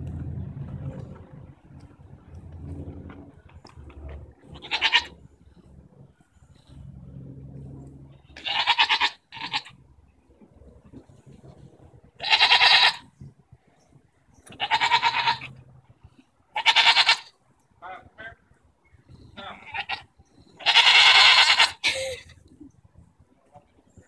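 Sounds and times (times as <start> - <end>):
faint low rumble: 0.0 - 12.4
goats bleating: 4.4 - 5.2, 8.4 - 9.8, 12.2 - 13.0, 14.5 - 15.6, 16.5 - 17.3, 19.4 - 22.0.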